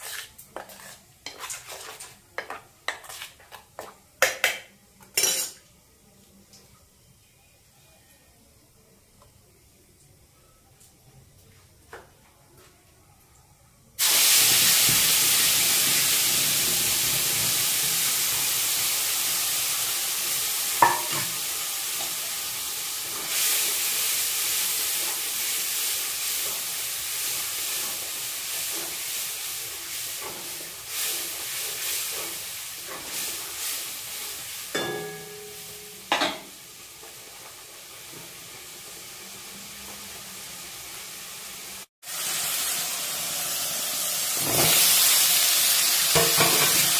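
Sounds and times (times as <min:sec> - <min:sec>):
ladle scraping in wok: 0:00.0 - 0:03.7
hot oil sizzling in wok: 0:00.0 - 0:06.1, 0:14.0 - 0:46.9.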